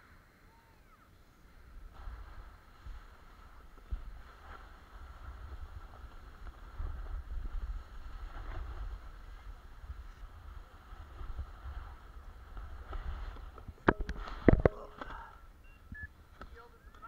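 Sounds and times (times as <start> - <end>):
wind rumbling on microphone: 1.5 - 16.6
snowboard scraping on snow: 1.9 - 13.6.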